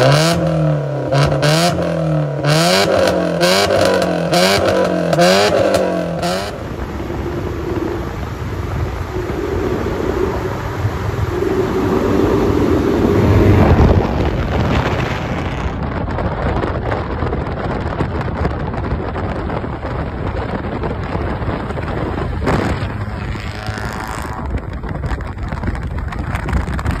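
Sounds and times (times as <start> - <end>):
car engine revving: 0.0 - 16.0, 21.0 - 25.6
road noise: 0.0 - 27.0
wind buffeting microphone: 0.0 - 27.0
loud car driving past: 22.4 - 24.6.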